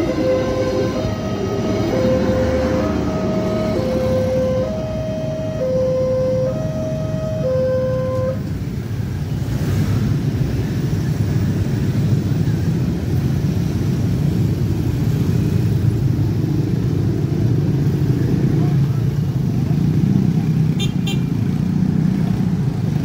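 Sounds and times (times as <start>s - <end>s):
two-tone crossing alarm: 0.0s - 8.5s
motorcycle engines running: 8.4s - 23.0s.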